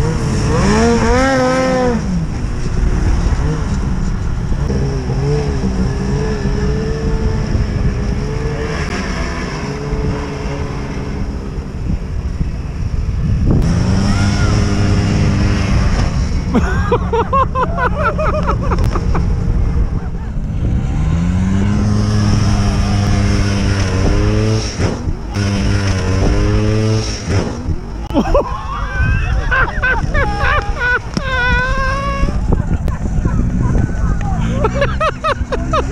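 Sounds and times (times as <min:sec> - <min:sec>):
snowmobile engines revving: 0:00.0 - 0:35.9.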